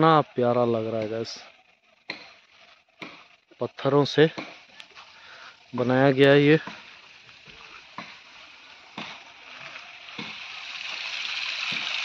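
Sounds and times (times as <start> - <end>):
running water trickling: 4.7 - 12.0.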